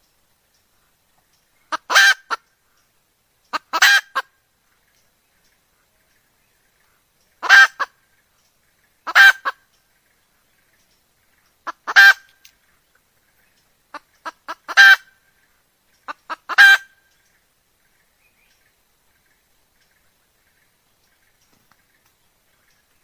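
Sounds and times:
hen clucks: 0:01.6 - 0:02.5, 0:03.5 - 0:04.3, 0:07.3 - 0:08.0, 0:09.0 - 0:09.7, 0:11.6 - 0:12.4, 0:13.9 - 0:15.2, 0:16.0 - 0:17.3
hen cackling call: 0:01.7 - 0:02.4, 0:03.5 - 0:04.3, 0:07.4 - 0:08.0, 0:09.0 - 0:09.6, 0:11.6 - 0:12.3, 0:13.9 - 0:15.2, 0:16.1 - 0:17.0.

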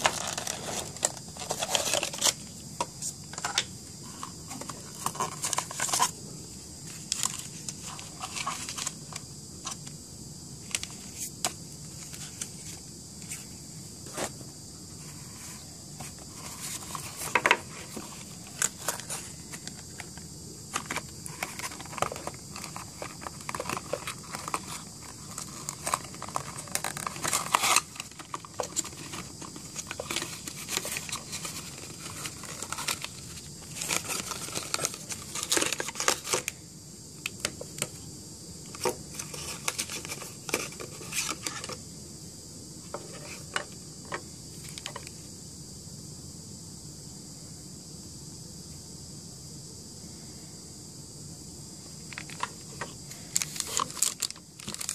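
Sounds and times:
cardboard and plastic rustling: 0:00.0 - 0:06.2, 0:06.8 - 0:10.0, 0:10.6 - 0:36.6, 0:38.7 - 0:41.8, 0:42.8 - 0:45.1, 0:52.1 - 0:54.9
steady high hiss: 0:00.0 - 0:54.9.

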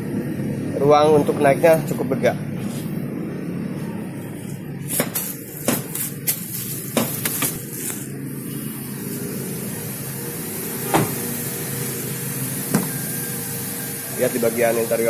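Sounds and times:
steady low rumble: 0:00.0 - 0:10.6.

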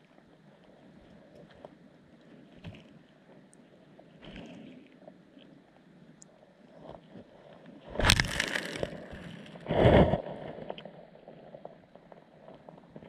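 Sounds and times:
faint small ticks: 0:00.0 - 0:03.6
muffled underwater water splashing: 0:06.6 - 0:10.8.

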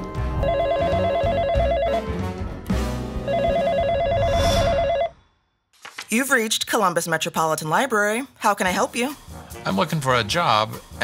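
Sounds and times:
background music: 0:00.0 - 0:05.1, 0:07.0 - 0:11.0
telephone ringing: 0:00.4 - 0:02.2, 0:03.2 - 0:05.2.

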